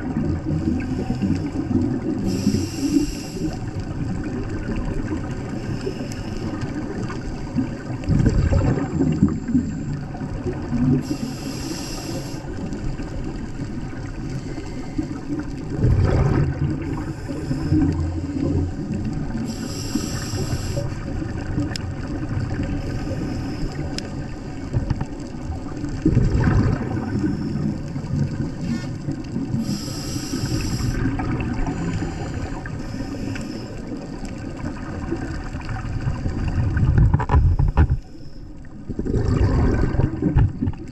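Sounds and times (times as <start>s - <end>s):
bubbling surges: 0.0s - 11.6s, 12.5s - 32.8s, 33.7s - 37.9s, 38.6s - 40.9s
underwater rumble: 0.0s - 40.9s
short hissing bursts: 2.2s - 3.6s, 11.0s - 12.5s, 19.4s - 21.0s, 29.6s - 31.0s.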